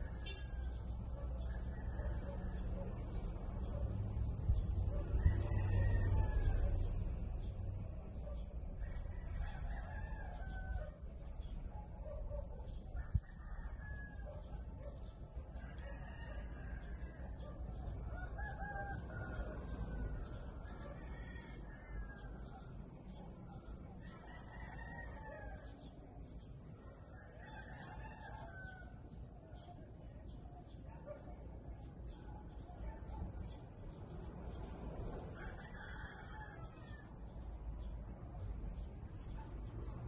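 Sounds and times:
rooster crowing: 0.0 - 2.6, 4.9 - 7.0, 8.8 - 11.0, 15.6 - 22.6, 35.4 - 37.2.

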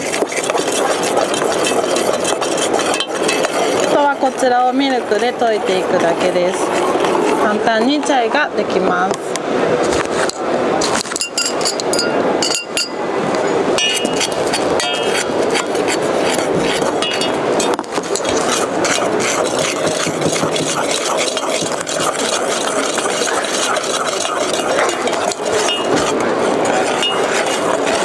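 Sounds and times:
metal spoon clinking in a pitcher: 0.0 - 4.0, 11.2 - 13.0, 13.8 - 15.3, 17.0 - 17.4, 19.5 - 26.1, 27.0 - 28.0
crowd chatter: 0.0 - 28.0.

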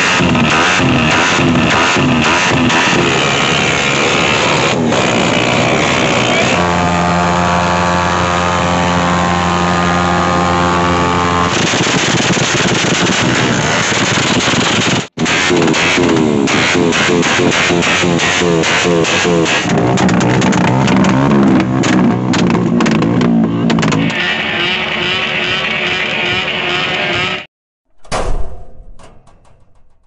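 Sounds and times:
motorcycle engines revving: 0.0 - 27.5
exhaust pops: 11.5 - 24.2.

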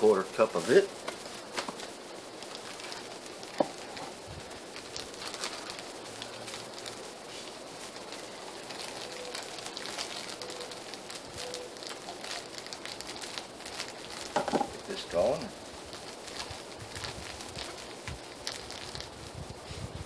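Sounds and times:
woodland ambience: 0.0 - 19.7
sugar bag crackling and rustling: 0.0 - 20.0.

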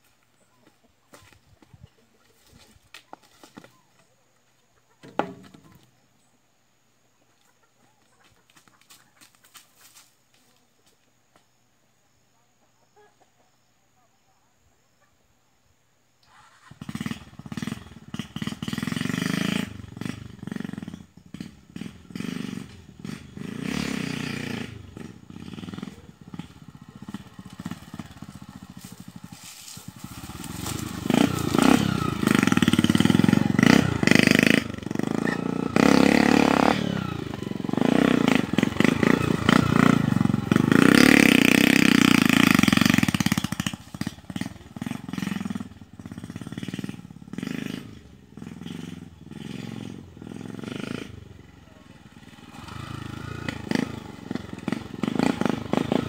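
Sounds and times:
motorcycle engine revving: 16.2 - 56.0.

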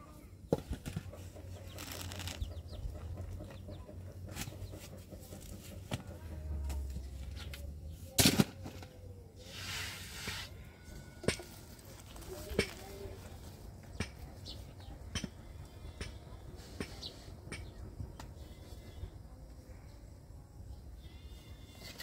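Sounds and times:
chickens clucking: 0.8 - 7.7.

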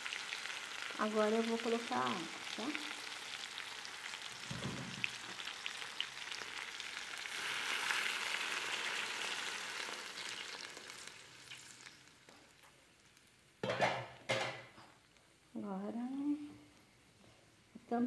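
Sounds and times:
chicken sizzling in hot oil: 0.0 - 14.0.

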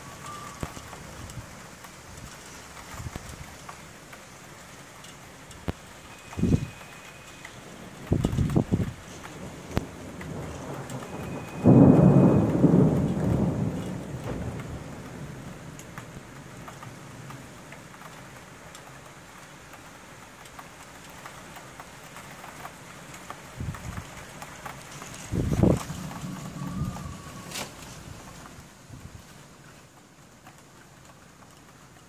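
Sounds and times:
steady rain: 0.0 - 32.0
loud thunderclap: 8.1 - 15.6, 25.3 - 27.5.

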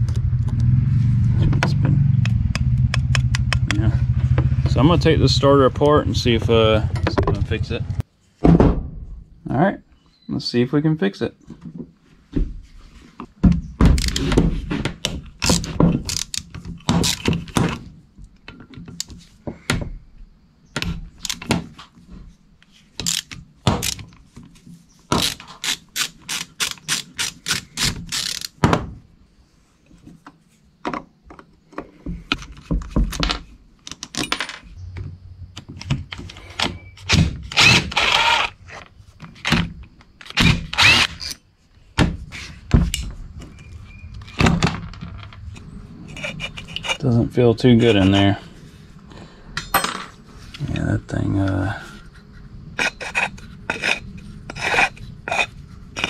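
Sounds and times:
metal scraping: 42.3 - 48.8, 52.7 - 56.0.

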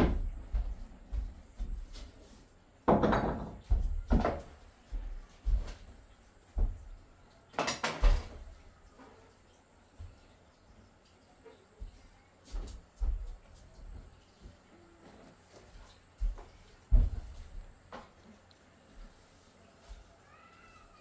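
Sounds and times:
objects knocking and clattering: 2.8 - 4.6, 7.5 - 9.2.

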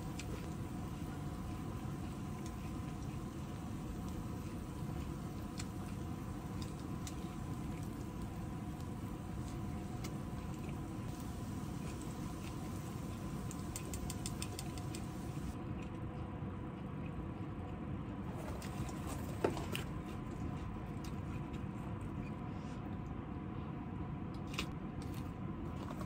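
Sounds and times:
soft chewing: 0.0 - 23.5
low background hum: 0.0 - 26.0
tongs and dishes clicking: 13.5 - 15.0.

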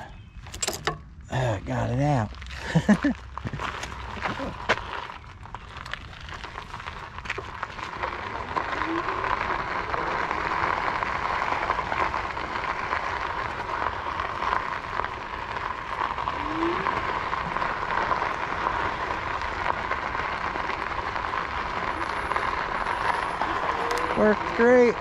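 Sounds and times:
bike tires rolling hiss: 2.4 - 25.0.

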